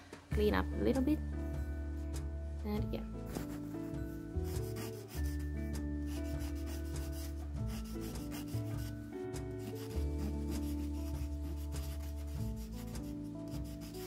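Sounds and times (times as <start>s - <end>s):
background music: 0.0s - 14.0s.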